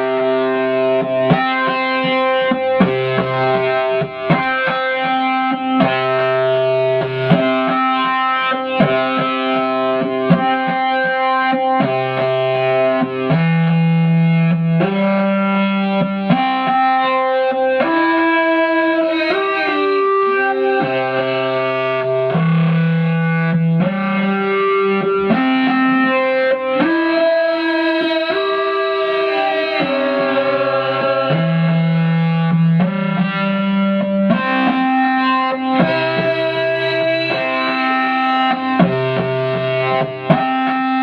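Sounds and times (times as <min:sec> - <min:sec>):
synthesizer sustained chords: 0:28.2 - 0:33.0
low bass note: 0:29.0 - 0:32.8.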